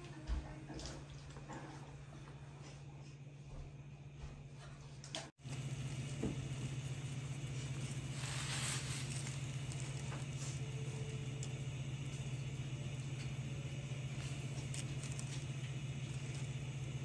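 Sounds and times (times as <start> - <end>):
steady low hum: 0.0 - 17.0
broth bubbling at a boil: 5.4 - 17.0.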